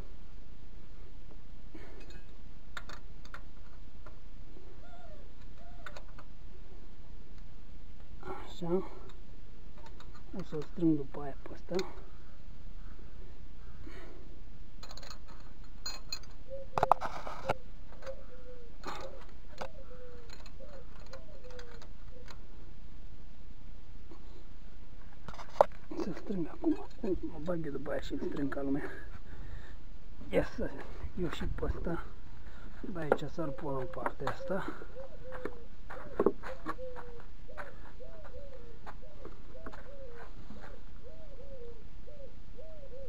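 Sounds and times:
small clicks: 0:02.0 - 0:04.2, 0:05.4 - 0:06.3
tools and containers clicking: 0:14.8 - 0:17.0, 0:18.8 - 0:21.9.

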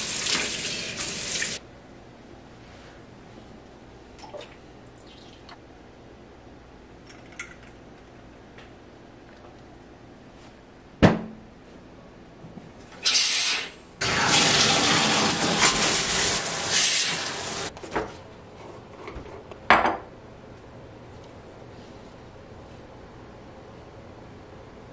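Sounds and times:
shower water spraying: 0:00.0 - 0:01.6, 0:13.0 - 0:17.7.

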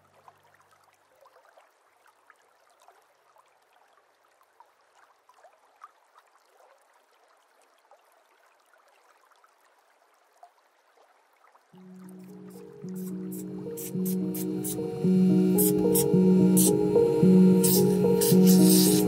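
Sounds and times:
music track: 0:11.8 - 0:19.0.

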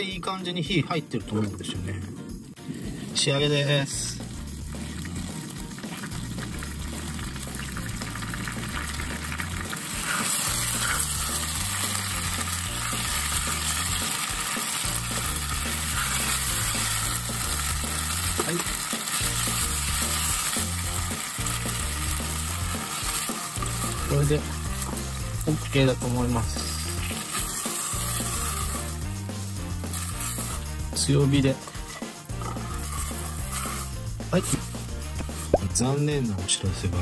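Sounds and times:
background music bass line: 0:00.0 - 0:37.0
beef sizzling in a frying pan: 0:04.2 - 0:35.6
tongs scraping meat: 0:07.3 - 0:35.5.

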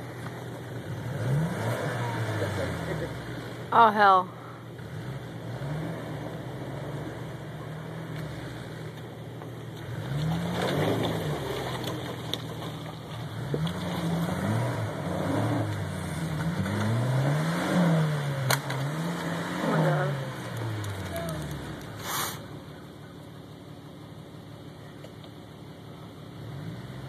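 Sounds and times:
engine revving: 0:00.0 - 0:04.1, 0:04.7 - 0:09.1, 0:09.7 - 0:12.6, 0:13.2 - 0:22.8, 0:26.2 - 0:27.0
engine idling: 0:00.0 - 0:05.5, 0:19.8 - 0:27.0.

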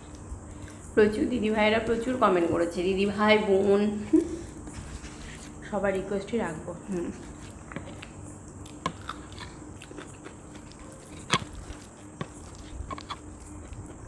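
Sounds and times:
chewing: 0:07.2 - 0:14.0
fingers mashing rice: 0:07.2 - 0:14.0.

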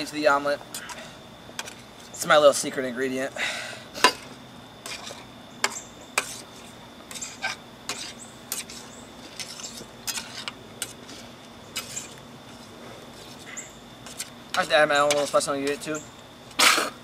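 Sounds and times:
spatula scraping metal frying pan: 0:04.8 - 0:12.2.

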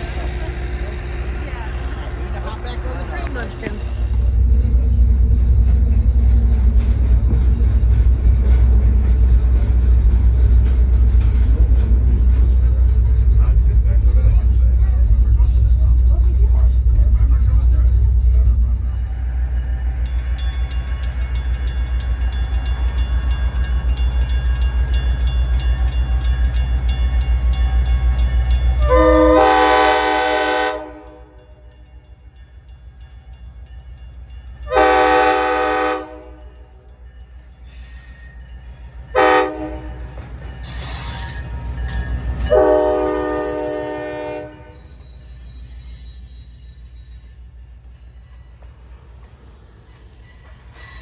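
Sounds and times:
diesel locomotive engine rumbling: 0:00.0 - 0:51.0
train air horn blasts: 0:28.8 - 0:31.3, 0:34.7 - 0:36.4, 0:39.2 - 0:40.0, 0:42.5 - 0:44.8.

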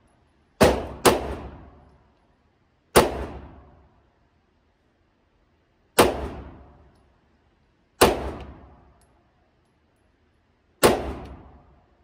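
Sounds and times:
pistol shots echoing indoors: 0:00.6 - 0:01.9, 0:08.0 - 0:09.0, 0:10.8 - 0:11.7.

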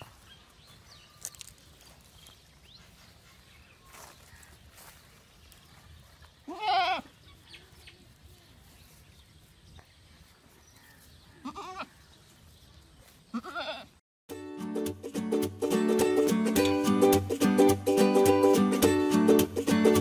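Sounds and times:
goats bleating: 0:06.5 - 0:07.2, 0:11.4 - 0:12.0, 0:13.3 - 0:14.0.

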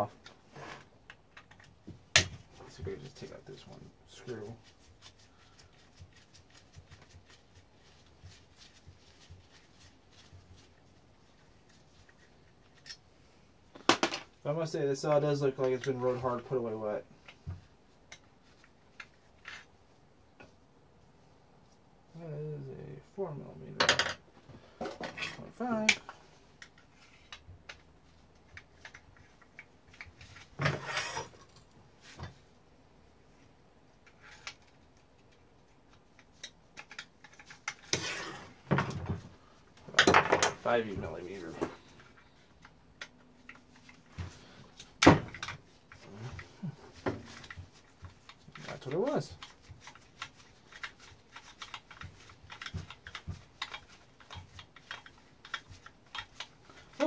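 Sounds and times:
parts clattering on a workbench: 0:13.7 - 0:14.4, 0:23.8 - 0:26.2, 0:36.8 - 0:40.7
chainsaw parts clicking and knocking: 0:35.9 - 0:37.9, 0:50.7 - 0:56.9.

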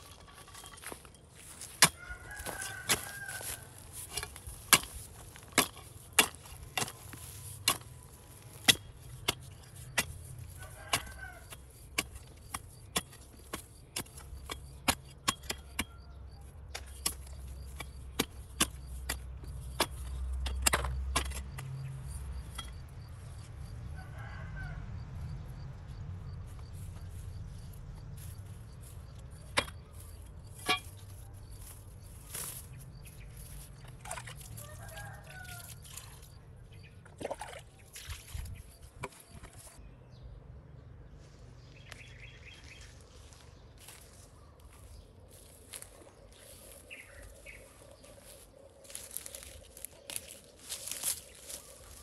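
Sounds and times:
digging tool chopping dry soil: 0:00.0 - 0:23.1, 0:27.3 - 0:36.3
rooster crowing: 0:01.9 - 0:03.8, 0:10.6 - 0:11.5, 0:23.8 - 0:25.0, 0:34.6 - 0:35.8.

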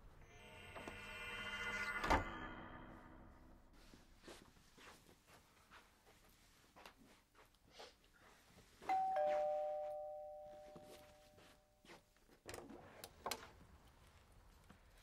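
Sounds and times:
two-note doorbell chime: 0:08.9 - 0:11.6.

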